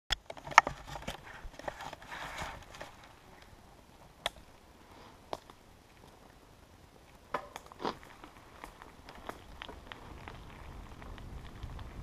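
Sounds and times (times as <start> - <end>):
bike clicking and rattling: 0.1 - 4.5, 7.1 - 12.0
bicycle tyres hissing on dirt: 1.2 - 3.8, 4.6 - 7.0, 7.8 - 12.0.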